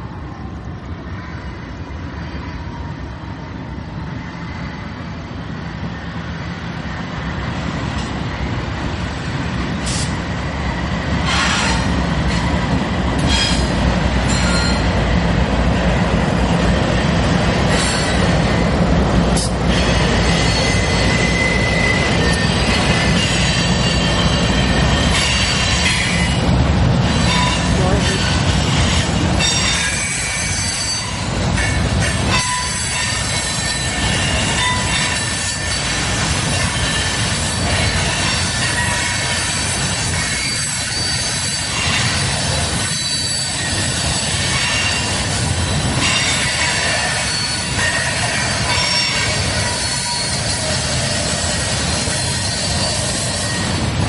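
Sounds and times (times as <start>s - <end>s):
diesel locomotive rumble: 0.0s - 54.0s
railcars rumbling: 0.0s - 54.0s
train wheels clicking over rail joints: 7.4s - 54.0s
high wheel squeal: 13.2s - 14.9s, 19.4s - 26.4s, 27.0s - 53.9s.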